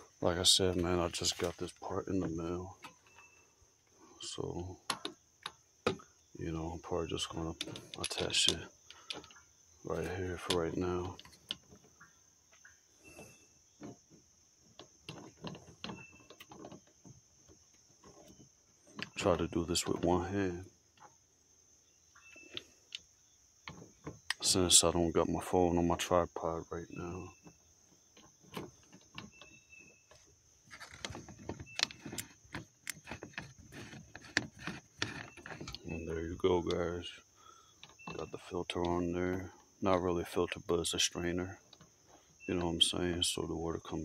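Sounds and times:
metal fitting clicks and scrapes: 0:07.6 - 0:09.4.

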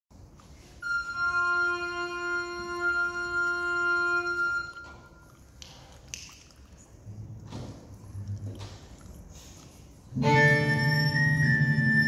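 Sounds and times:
recorder violin and bassoon note: 0:01.1 - 0:04.8, 0:10.2 - 0:12.0.

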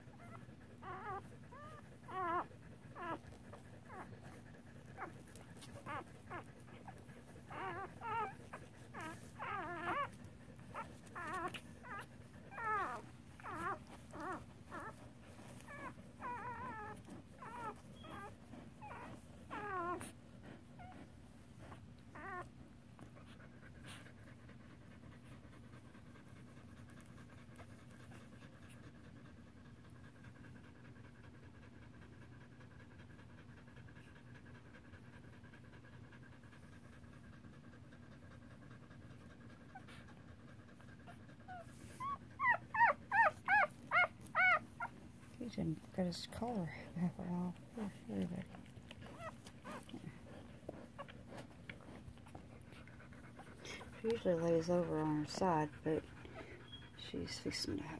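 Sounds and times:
dog whimpering: 0:00.0 - 0:24.1, 0:39.5 - 0:57.1
faint steady hum: 0:00.0 - 0:57.9
soft panting: 0:00.0 - 0:57.9.

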